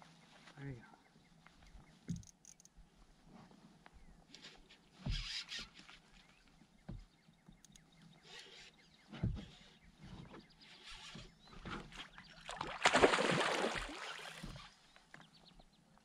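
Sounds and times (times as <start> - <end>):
splashing and rustling: 11.7 - 14.8.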